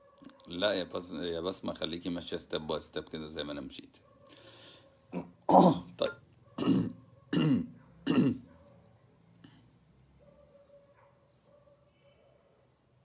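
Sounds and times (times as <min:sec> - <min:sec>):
man coughing: 0:05.1 - 0:08.5.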